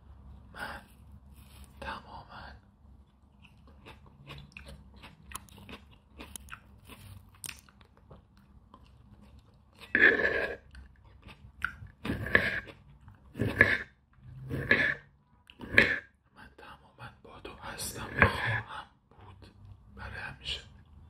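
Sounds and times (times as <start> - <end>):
chewing crunchy fruit: 3.0 - 16.1.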